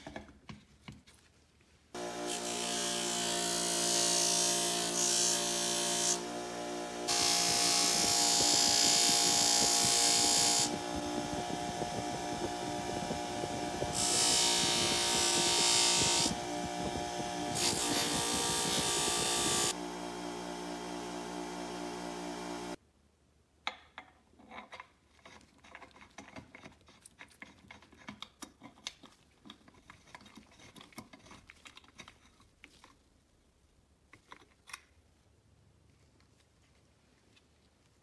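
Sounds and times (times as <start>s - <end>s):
bench grinder motor hum: 2.0s - 22.8s.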